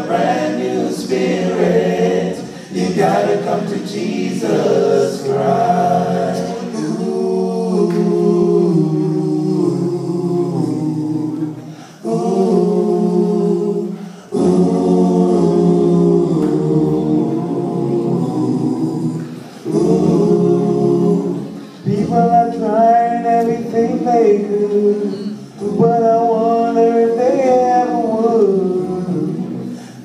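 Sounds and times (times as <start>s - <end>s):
male a cappella group singing: 0.0s - 30.0s.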